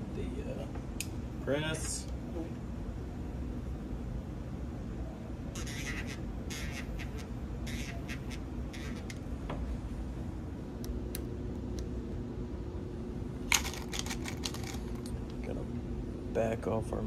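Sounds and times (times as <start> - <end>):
cartridge cases rustling and clicking: 13.5 - 15.1.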